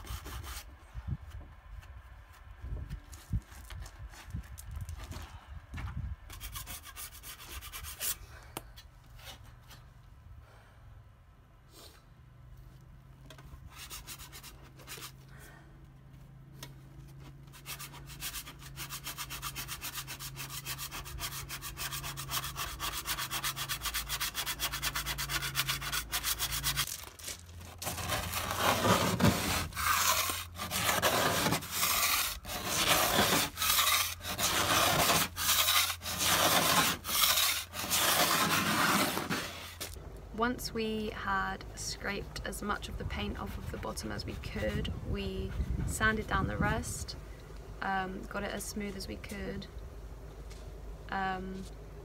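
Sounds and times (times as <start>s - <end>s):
sandpaper rubbing on paint: 17.5s - 39.9s.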